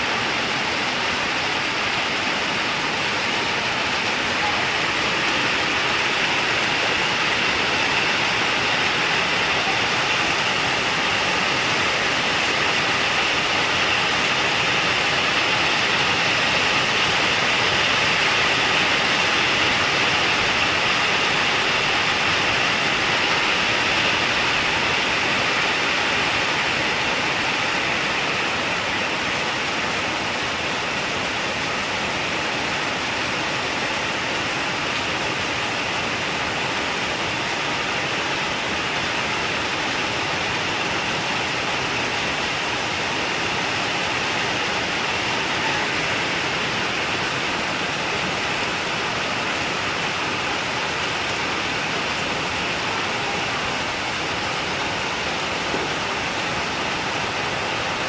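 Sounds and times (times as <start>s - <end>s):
heavy rain falling: 0.0s - 58.0s.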